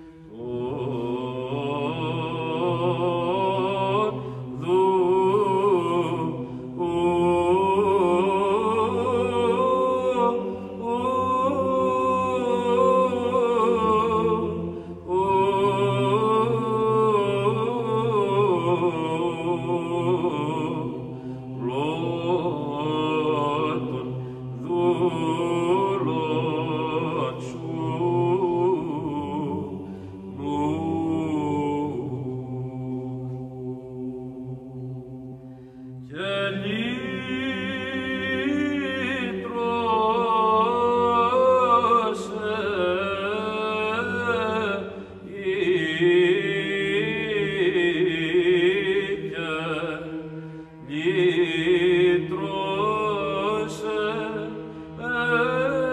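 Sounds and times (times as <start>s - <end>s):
melismatic vocal chant: 0.0s - 55.9s.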